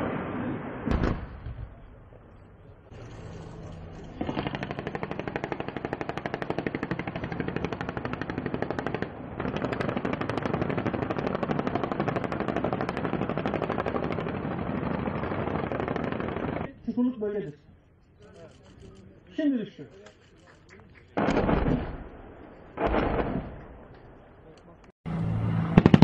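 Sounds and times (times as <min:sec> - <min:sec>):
helicopter cannon firing bursts: 0:00.0 - 0:02.1, 0:02.9 - 0:16.7, 0:21.2 - 0:23.9, 0:25.6 - 0:26.0.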